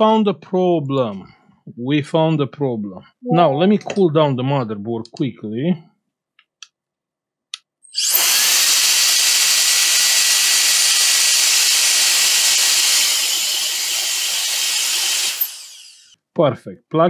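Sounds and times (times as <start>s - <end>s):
electric air blower whining: 8.0s - 16.1s.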